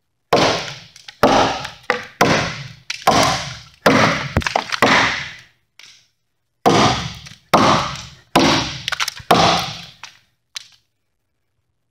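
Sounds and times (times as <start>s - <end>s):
axe chopping into timber: 0.4s - 5.4s, 6.7s - 10.0s.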